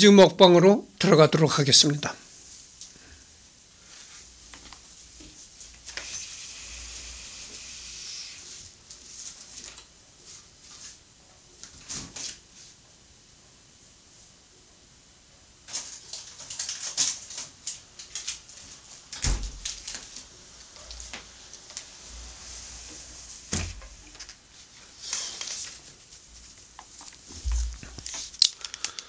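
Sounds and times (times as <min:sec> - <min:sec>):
plastic wrapper clicks and rustling: 0:15.7 - 0:18.6, 0:27.8 - 0:29.0.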